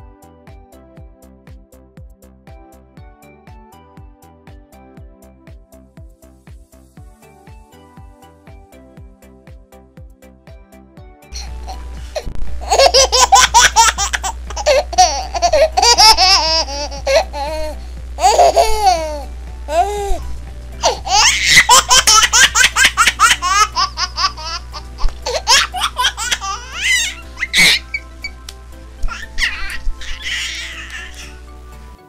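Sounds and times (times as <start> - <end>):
background music: 0.0 - 32.0
children laughing: 12.6 - 19.2, 20.8 - 28.0, 29.1 - 31.3.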